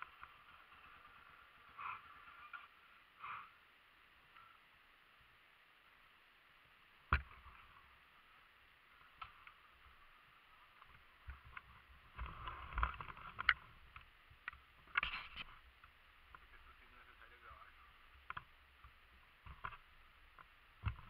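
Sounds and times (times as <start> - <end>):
rustling: 8.9 - 17.4.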